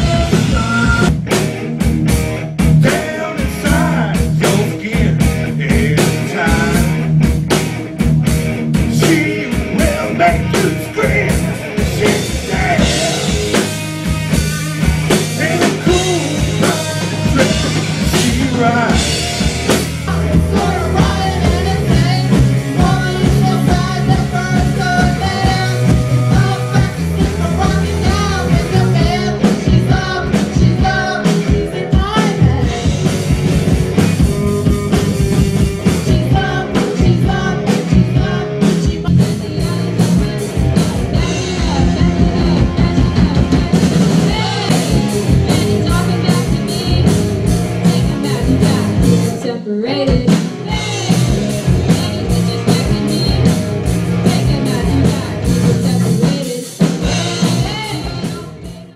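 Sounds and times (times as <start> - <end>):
bass guitar: 0.0 - 58.9
drum kit: 0.0 - 58.9
electric guitar: 0.0 - 58.9
woman singing: 20.0 - 33.1, 34.1 - 58.9.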